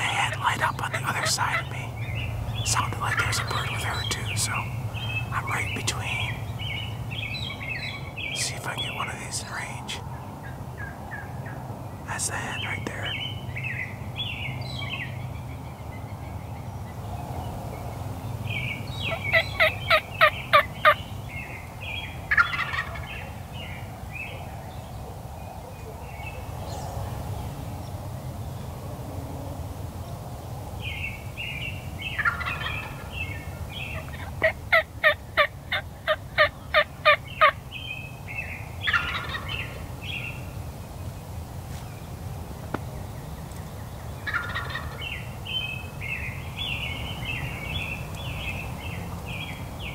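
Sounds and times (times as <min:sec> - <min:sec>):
soft bird calls: 0:00.0 - 0:29.0, 0:30.1 - 0:49.9
turkey gobbling: 0:22.3 - 0:23.1, 0:32.2 - 0:33.1, 0:34.0 - 0:37.6, 0:38.9 - 0:39.7, 0:44.2 - 0:45.0.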